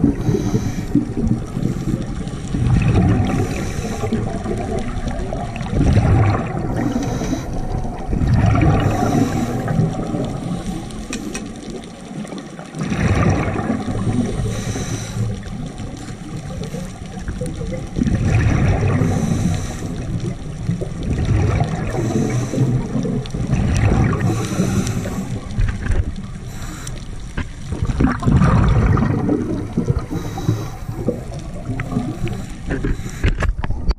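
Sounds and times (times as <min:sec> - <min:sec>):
regulator inhale hiss: 0:00.0 - 0:02.6, 0:03.2 - 0:04.4, 0:06.7 - 0:07.8, 0:08.8 - 0:11.4, 0:14.0 - 0:17.1, 0:19.0 - 0:20.4, 0:21.8 - 0:23.1, 0:24.2 - 0:25.6, 0:26.4 - 0:27.4, 0:30.0 - 0:33.5
gurgling exhaled bubbles: 0:00.0 - 0:33.9.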